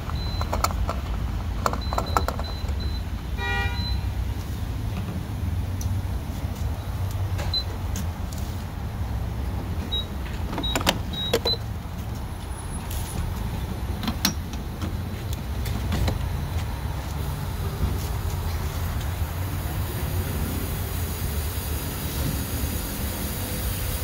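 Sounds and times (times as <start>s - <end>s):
fuel nozzle clicks and knocks: 0.0s - 2.8s
fuel pump keypad beeps: 0.0s - 4.2s, 7.4s - 7.8s, 9.9s - 11.7s.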